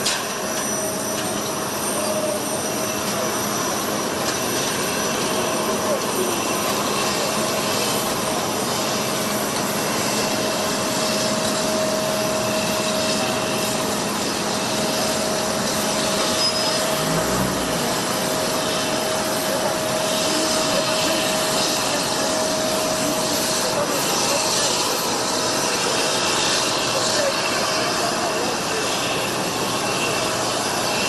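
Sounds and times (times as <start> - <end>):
jet engine running: 0.0 - 31.0.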